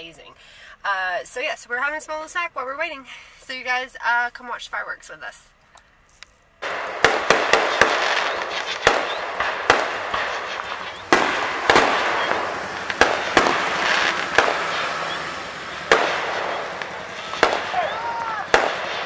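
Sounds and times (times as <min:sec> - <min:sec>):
continuous hiss: 0:00.0 - 0:19.0
fireworks shells bursting: 0:06.6 - 0:19.0.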